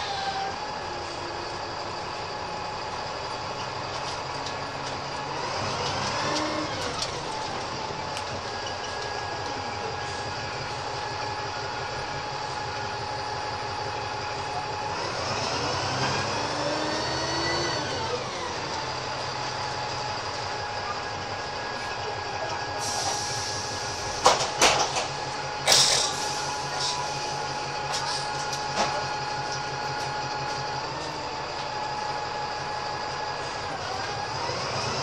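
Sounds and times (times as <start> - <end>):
bus engine whining: 0.0 - 35.0
air hiss: 22.8 - 24.2, 25.6 - 27.3
sharp knocks and clatters: 24.2 - 25.2.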